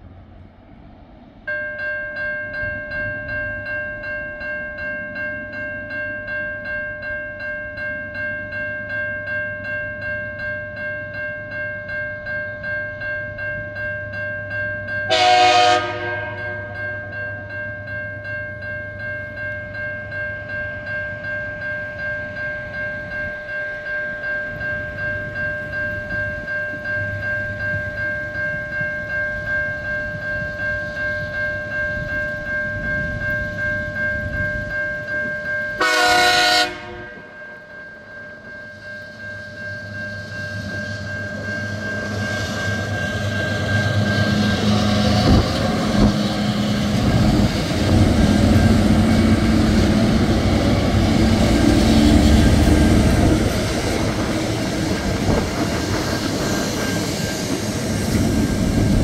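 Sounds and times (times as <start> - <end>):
level crossing warning bell: 1.4 - 55.9
diesel locomotive horn blast: 15.1 - 16.8, 35.8 - 37.4.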